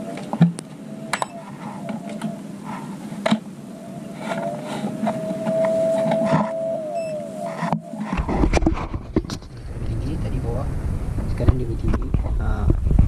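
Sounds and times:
faint steady whine: 0:00.0 - 0:12.8.

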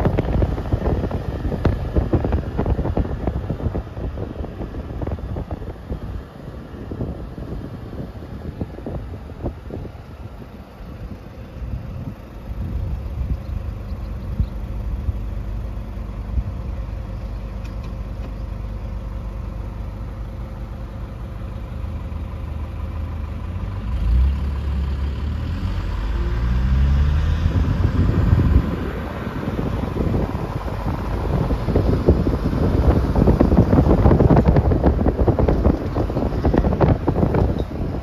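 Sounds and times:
engine speeding up: 0:00.0 - 0:10.4, 0:22.9 - 0:38.0
car engine and road rumble: 0:00.0 - 0:38.0.

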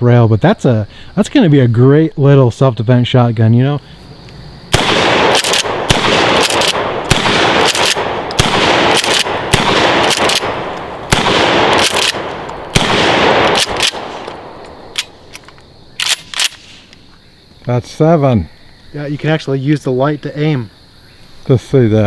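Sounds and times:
sharp metallic clicks: 0:04.2 - 0:17.0
shotgun shots echoing: 0:04.7 - 0:15.3
shotgun pump action: 0:04.8 - 0:16.9.

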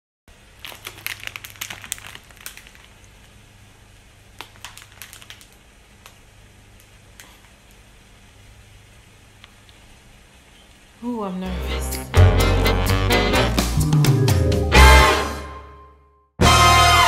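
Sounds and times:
plastic bag crinkling: 0:00.3 - 0:07.5.

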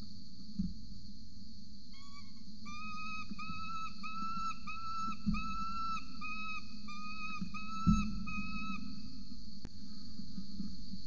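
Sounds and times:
falcon whining calls: 0:02.0 - 0:09.0.

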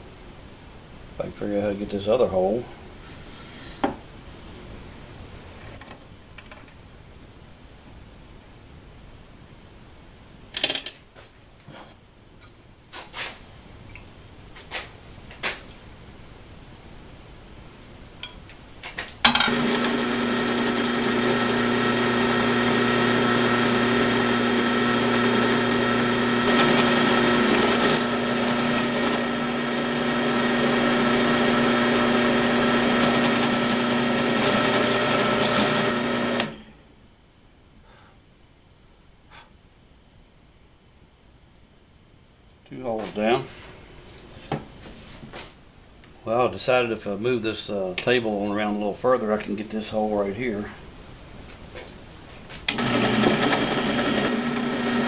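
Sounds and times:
drill press motor humming: 0:19.3 - 0:36.6, 0:52.7 - 0:55.0.

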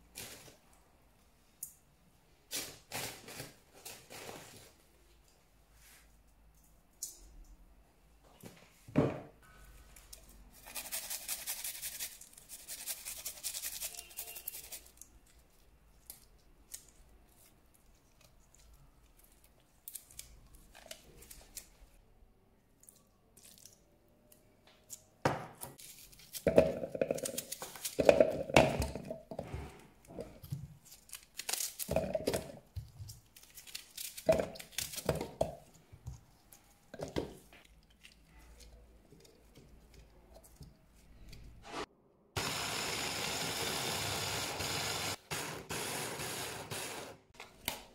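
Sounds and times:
seasoning rustling in bowl: 0:10.5 - 0:16.4.

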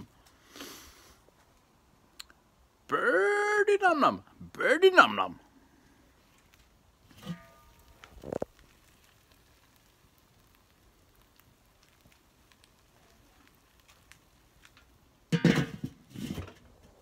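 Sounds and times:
meat sizzling over charcoal: 0:05.5 - 0:17.0
small crackles and ticks: 0:05.8 - 0:15.3.

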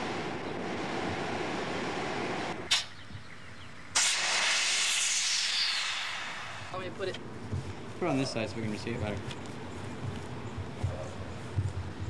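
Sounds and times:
sharp click: 0:02.7 - 0:02.9
furnace air blower rushing: 0:04.0 - 0:06.9
steam hissing: 0:04.0 - 0:06.9.

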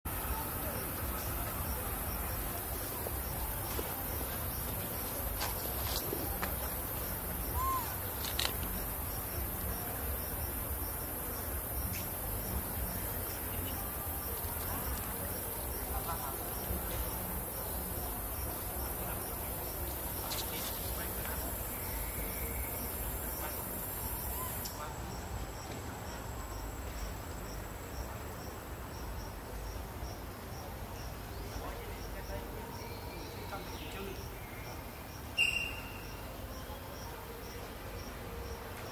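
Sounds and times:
background hiss: 0:00.1 - 0:38.9
insect chorus drone: 0:00.1 - 0:38.9
insect chirping in high pulses: 0:07.1 - 0:13.5, 0:34.2 - 0:36.3.

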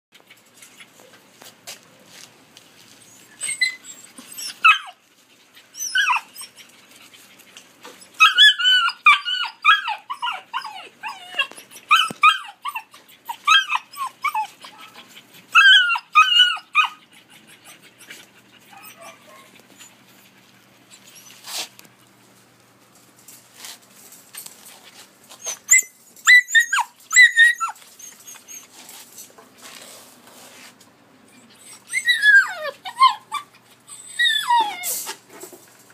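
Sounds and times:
puppies whining and yipping: 0:02.9 - 0:21.7, 0:25.3 - 0:29.0, 0:31.3 - 0:35.2.

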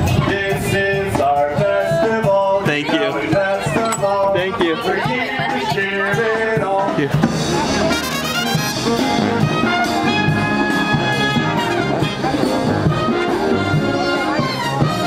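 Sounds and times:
brass band playing: 0:07.0 - 0:15.0.

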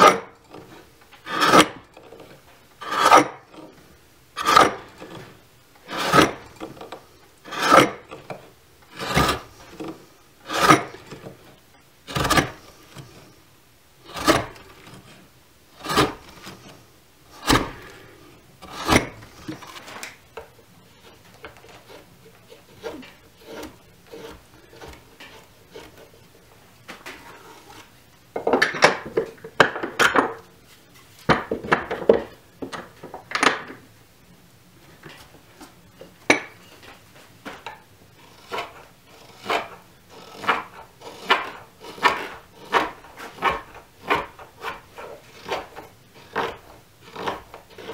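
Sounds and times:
gouge cutting wood: 0:00.0 - 0:03.7, 0:04.4 - 0:11.4, 0:12.1 - 0:13.2, 0:14.1 - 0:15.2, 0:15.8 - 0:16.7, 0:17.4 - 0:20.0, 0:21.1 - 0:26.2, 0:38.2 - 0:47.9
scraping cuts on wood: 0:00.0 - 0:13.4, 0:14.0 - 0:32.8, 0:36.3 - 0:47.9.

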